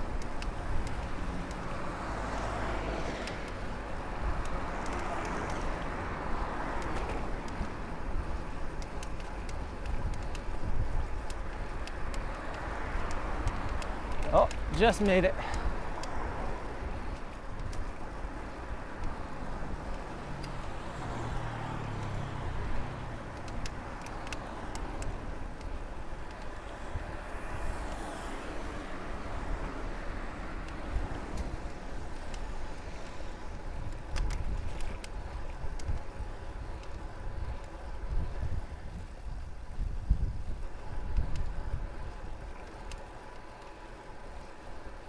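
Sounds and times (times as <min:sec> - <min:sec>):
car engine hum: 0:00.0 - 0:45.0
wind and tyre noise: 0:00.0 - 0:45.0
sharp clicks: 0:06.7 - 0:16.3, 0:23.1 - 0:26.7, 0:33.6 - 0:37.9.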